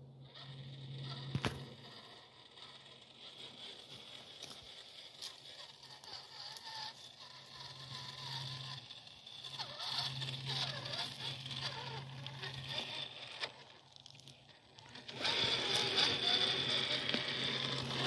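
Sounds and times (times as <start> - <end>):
toy truck motor whirring: 0.0 - 18.0.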